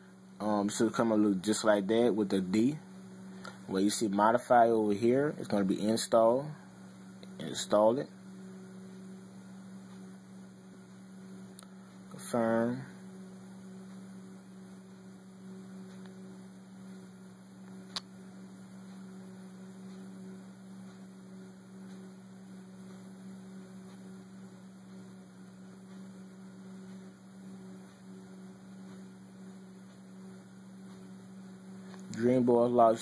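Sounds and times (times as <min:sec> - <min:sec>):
low electrical hum: 0:00.0 - 0:33.0
sharp click: 0:17.6 - 0:18.1.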